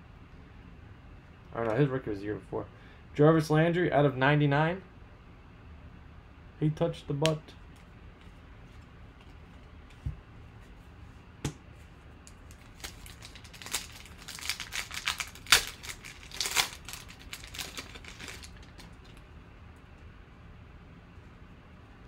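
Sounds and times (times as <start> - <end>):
foil wrapper tearing and crinkling: 12.3 - 19.2.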